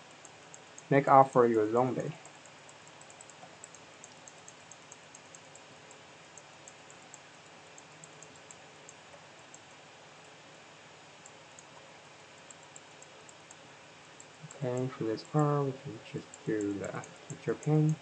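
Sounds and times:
steady background hiss: 0.0s - 18.0s
computer clicks: 2.0s - 9.7s, 11.2s - 18.0s.

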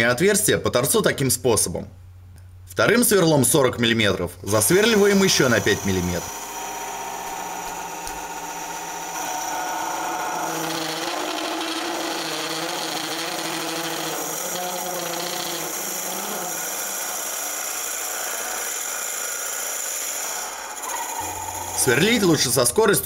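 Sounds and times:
boring bit cutting wood: 4.5s - 22.8s
wood lathe humming: 4.5s - 22.8s.

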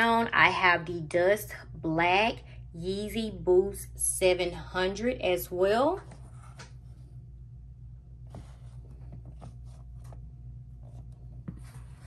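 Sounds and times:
low steady hum: 0.0s - 12.0s
sneaker rustling and tapping: 8.3s - 12.0s.

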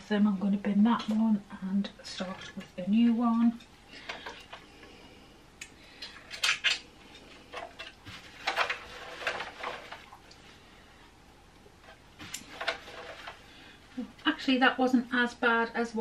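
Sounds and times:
clicks and scrapes in sewing machine: 7.6s - 10.1s.

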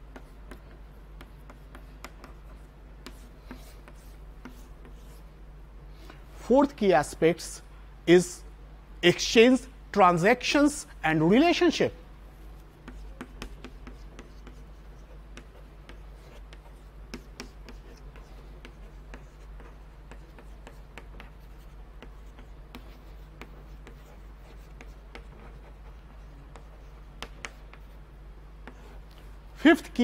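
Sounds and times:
chalk writing on blackboard: 0.0s - 5.3s, 12.5s - 28.0s, 28.6s - 29.4s.

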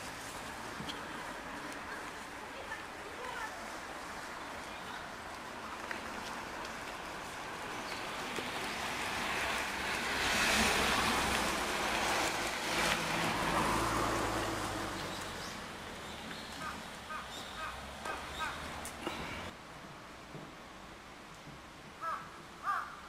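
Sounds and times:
van tyres and engine passing: 0.0s - 19.6s.

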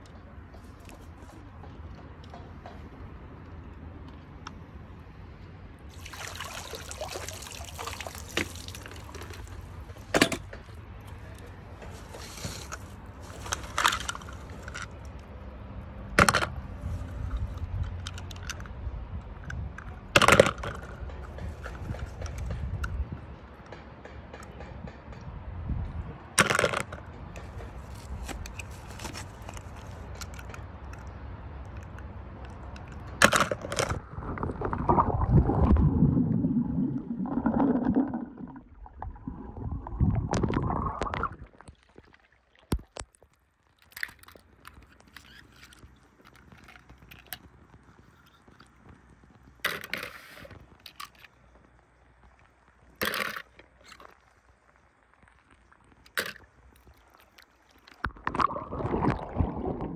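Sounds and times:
water sloshing and splashing: 5.8s - 18.6s, 26.4s - 47.4s, 52.1s - 59.9s.

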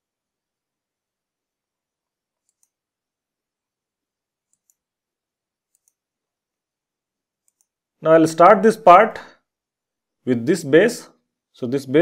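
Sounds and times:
faint computer mouse clicks: 2.4s - 2.8s, 4.5s - 4.8s, 5.7s - 6.0s, 7.4s - 7.8s.

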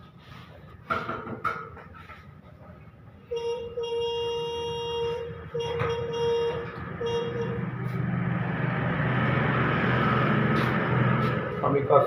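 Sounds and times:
vehicle engine: 0.0s - 12.0s
vehicle horn honking: 3.2s - 7.9s.

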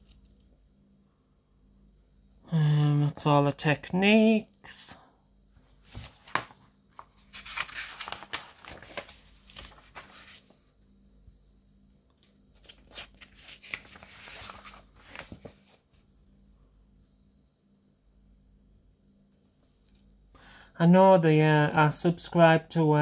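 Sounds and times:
paper pages rustling: 5.6s - 10.9s, 12.1s - 16.0s.

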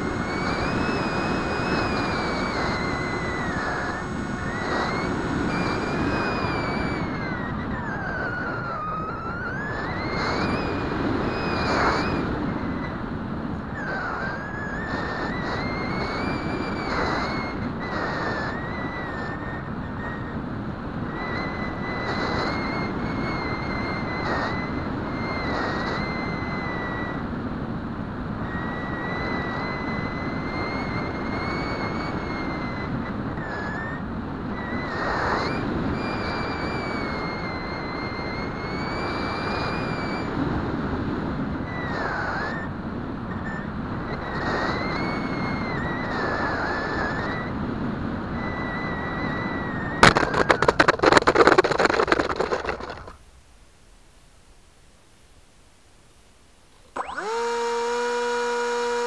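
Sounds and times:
electric motor whining: 0.0s - 12.9s, 56.9s - 59.0s
wind rush on microphone: 0.0s - 53.3s
plane scraping across dirt: 50.0s - 53.2s.

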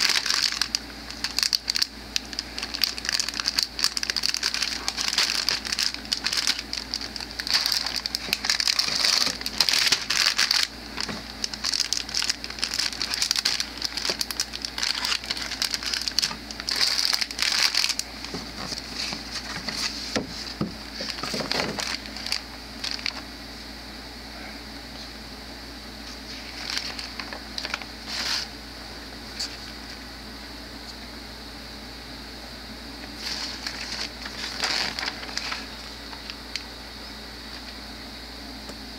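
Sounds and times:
plastic bags crinkling: 0.0s - 23.2s, 26.3s - 28.5s, 33.2s - 36.4s.

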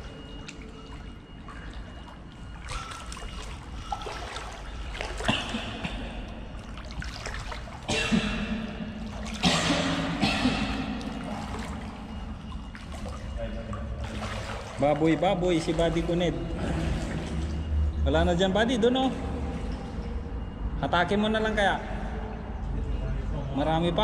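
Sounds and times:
shallow water trickling: 0.0s - 20.8s
loud water splashes: 2.6s - 17.9s.

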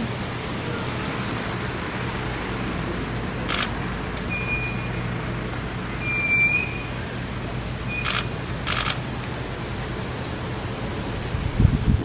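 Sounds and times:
camera shutter click: 3.5s - 3.8s, 8.0s - 9.0s
high thin whistles: 6.0s - 7.0s.

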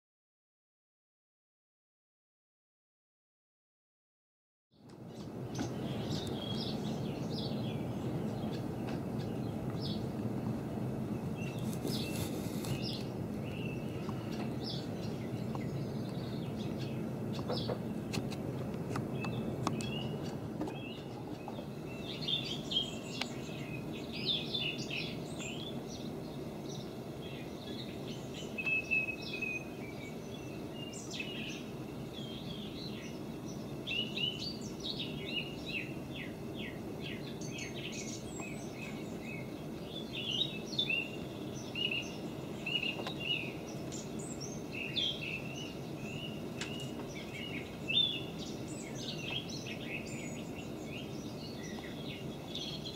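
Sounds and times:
low background noise: 4.8s - 52.9s
songbirds chirping: 4.8s - 52.9s.

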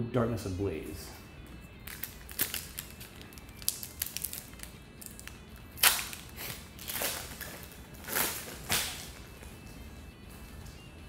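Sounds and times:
foil pack crinkling: 1.8s - 9.5s
foil pack ripping: 1.8s - 9.5s.

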